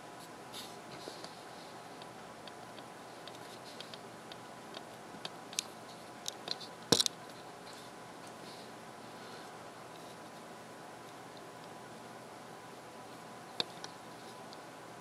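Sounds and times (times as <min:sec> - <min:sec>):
computer fans whirring: 0:00.0 - 0:15.0
hard drive seeking ticks: 0:00.2 - 0:08.7, 0:09.3 - 0:12.1, 0:13.1 - 0:15.0
hard drive click cluster: 0:13.1 - 0:14.8.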